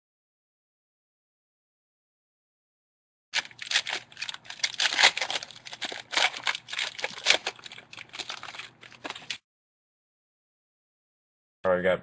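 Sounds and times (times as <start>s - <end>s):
wrapper tearing and crinkling: 3.4s - 9.4s.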